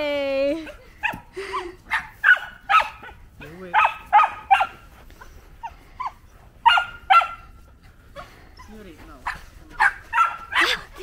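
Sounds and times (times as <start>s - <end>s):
dog yipping: 1.9s - 4.8s, 5.6s - 7.6s, 8.2s - 11.0s.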